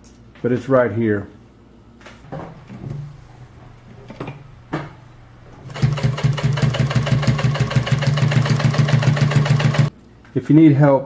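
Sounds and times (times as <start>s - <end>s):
sewing machine motor hum: 5.4s - 9.9s
sewing machine stitching rhythm: 5.6s - 9.9s.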